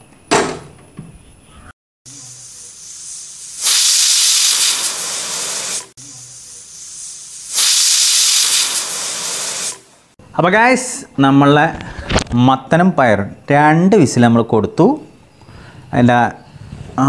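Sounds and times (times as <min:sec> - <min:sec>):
pressure cooker whistle venting steam: 0:02.1 - 0:09.9.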